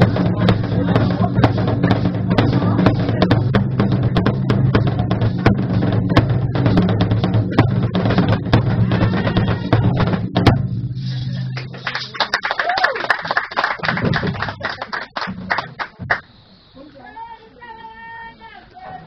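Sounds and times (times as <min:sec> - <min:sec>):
large drums beaten with sticks: 0:00.0 - 0:12.2, 0:13.8 - 0:16.2
steady low hum: 0:00.0 - 0:12.4.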